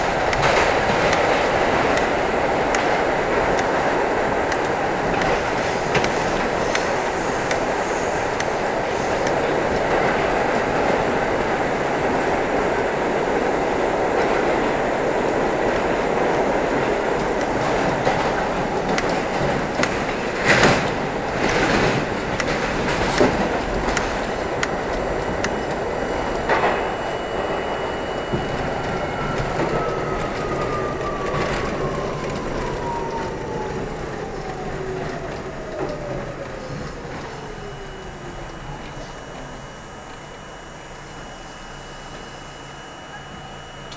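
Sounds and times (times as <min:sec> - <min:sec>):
subway train rumbling in tunnel: 0:00.0 - 0:43.9
train braking: 0:00.0 - 0:43.9
wheels clacking over rail joints: 0:15.5 - 0:27.0
traction motor whine: 0:15.7 - 0:43.9.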